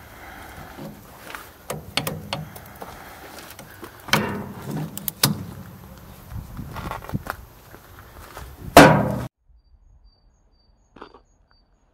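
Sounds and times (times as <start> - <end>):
hydraulic couplers clicking and clunking: 0.6 - 6.2.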